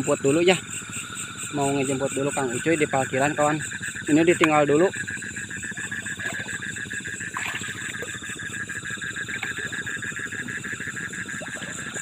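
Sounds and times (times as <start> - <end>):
crickets and insects trilling: 0.0 - 12.0
short insect calls: 0.0 - 12.0.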